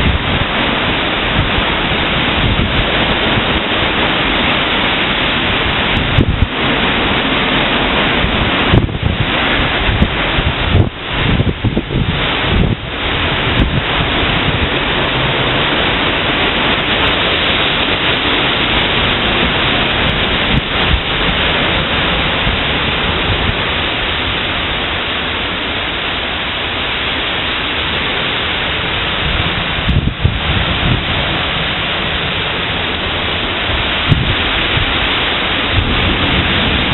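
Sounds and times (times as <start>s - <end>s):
heavy rain pouring on road: 0.0s - 36.9s.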